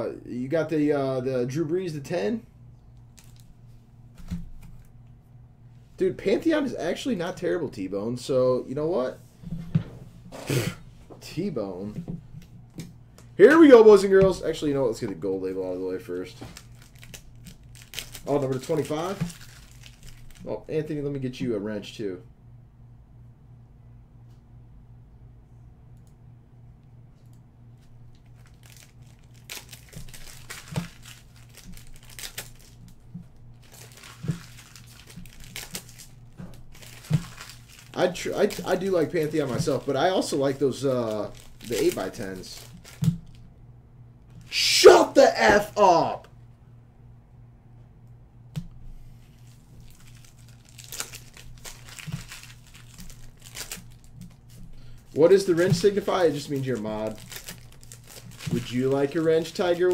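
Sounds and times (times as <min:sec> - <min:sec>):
faint steady hum: 0:00.0 - 0:59.9
wrapper tearing and crinkling: 0:03.1 - 0:03.5, 0:16.5 - 0:20.5, 0:28.2 - 0:33.0, 0:33.6 - 0:43.4, 0:49.3 - 0:59.9.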